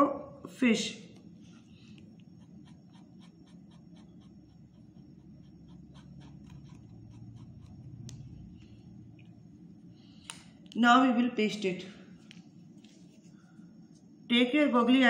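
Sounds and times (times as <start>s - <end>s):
felt-tip pen scratching on wood: 2.2s - 8.1s.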